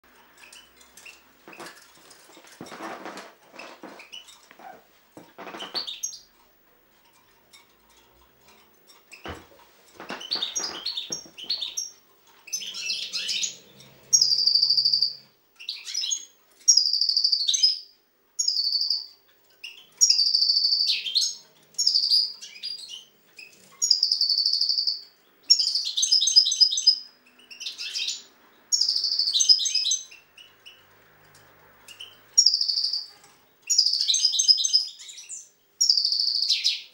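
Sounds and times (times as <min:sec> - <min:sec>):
bird twittering song: 0:05.4 - 0:06.3, 0:10.0 - 0:30.9, 0:31.8 - 0:36.9.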